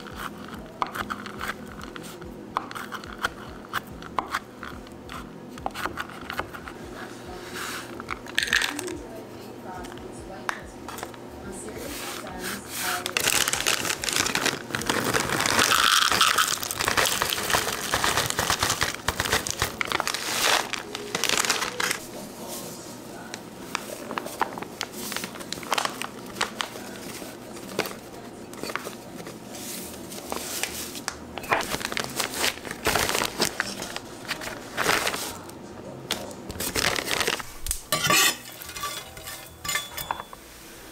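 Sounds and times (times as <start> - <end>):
crinkling and rustling: 11.8 - 35.5, 36.1 - 40.3.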